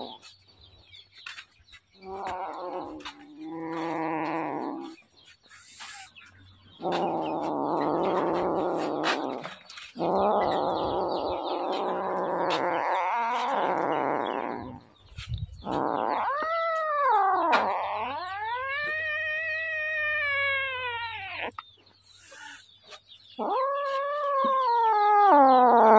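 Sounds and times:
kitten yowling growls: 0.0 - 0.2, 2.0 - 5.0, 6.8 - 14.9, 15.6 - 21.6, 23.4 - 25.9.

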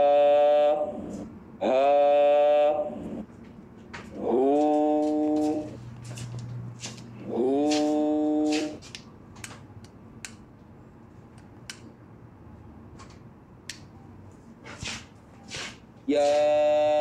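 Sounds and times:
person speaking a drawn-out vowel: 0.0 - 3.1, 16.1 - 17.0.

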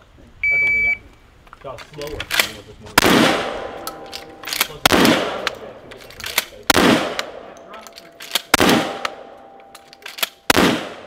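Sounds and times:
shotgun shots with echo: 3.0 - 3.8, 4.6 - 5.7, 6.6 - 7.6, 8.4 - 9.4, 10.4 - 11.0.

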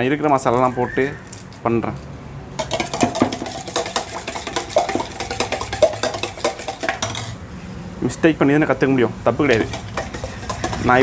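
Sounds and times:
metal spoon clinking in steel bowl: 2.6 - 7.4, 9.6 - 11.0.

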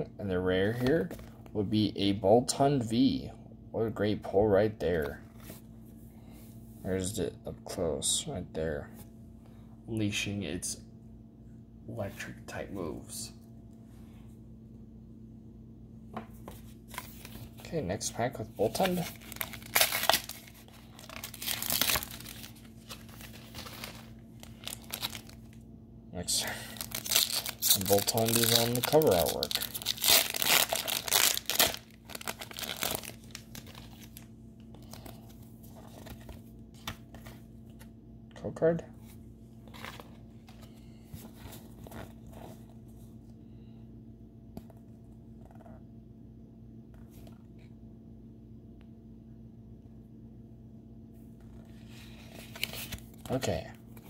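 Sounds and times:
steady low hum: 0.0 - 54.0
foil wrapper crinkling and tearing: 18.6 - 25.6, 26.6 - 35.2
trading cards shuffling: 18.6 - 25.6, 26.8 - 34.2.

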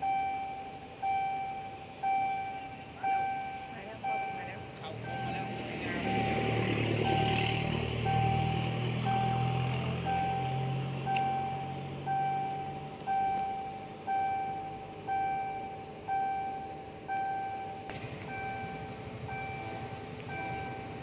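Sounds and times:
low rumble: 5.0 - 21.0.

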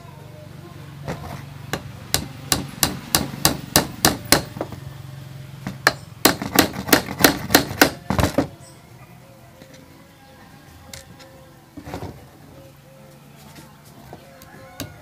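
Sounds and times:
hammer driving a nail into wood: 1.7 - 4.7, 5.7 - 8.5.

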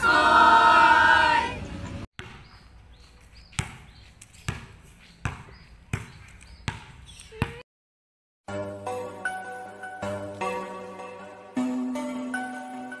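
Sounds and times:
basketball bouncing on hard court: 2.2 - 7.6.

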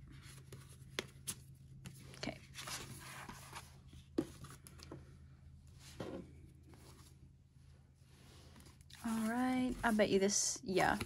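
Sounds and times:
paper and cardboard rustling: 0.1 - 4.7.

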